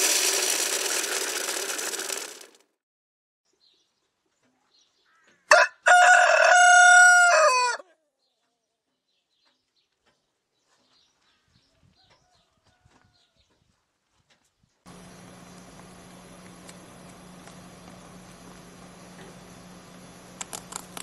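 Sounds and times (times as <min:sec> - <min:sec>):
rooster crowing: 0:05.5 - 0:07.8.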